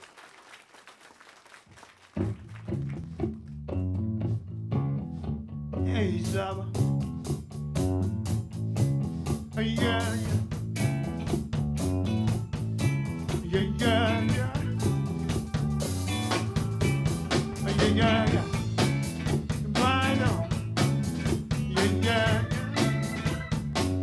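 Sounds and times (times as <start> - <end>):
electric bass groove: 2.2 - 24.0
drum kit with cymbal strikes: 6.8 - 24.0
electric guitar lines: 10.2 - 24.0.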